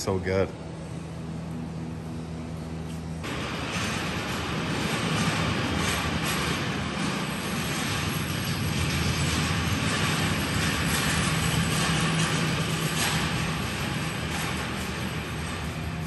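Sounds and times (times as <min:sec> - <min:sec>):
engine idling: 0:03.2 - 0:16.0.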